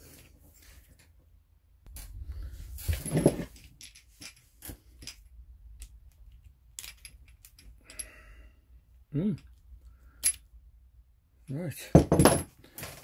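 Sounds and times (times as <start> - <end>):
small metallic clicks and clinks: 3.6 - 8.2.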